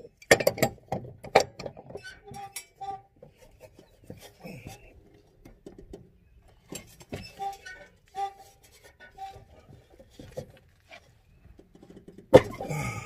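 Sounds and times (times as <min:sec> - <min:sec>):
metal tools clinking and knocking: 0:00.0 - 0:02.8.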